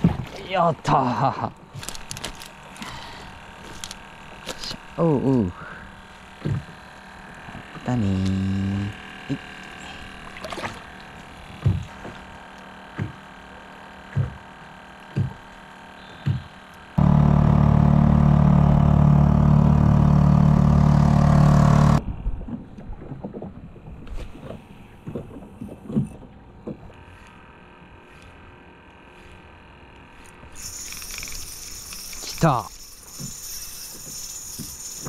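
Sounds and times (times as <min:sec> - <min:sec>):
water lapping: 0:09.3 - 0:12.4
loud steady drone: 0:17.0 - 0:22.0.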